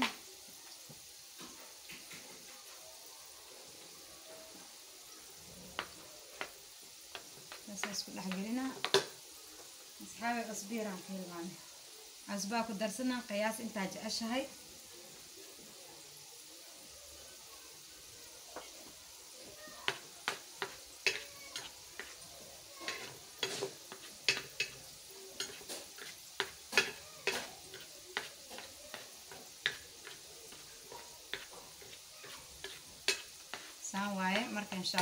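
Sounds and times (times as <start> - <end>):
spatula scraping and tapping plate: 5.8 - 9.1, 19.8 - 22.2, 22.8 - 35.0.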